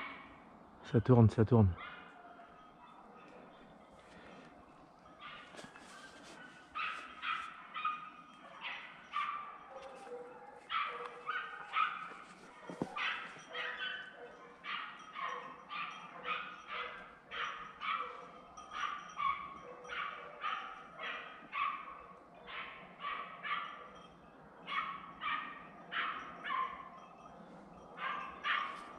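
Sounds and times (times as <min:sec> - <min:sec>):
dogs barking sharply: 0:06.8 - 0:24.0, 0:28.0 - 0:28.9.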